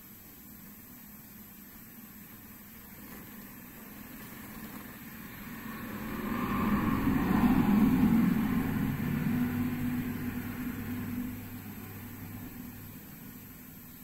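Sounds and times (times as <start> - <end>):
vehicle passing by: 5.0 - 13.0.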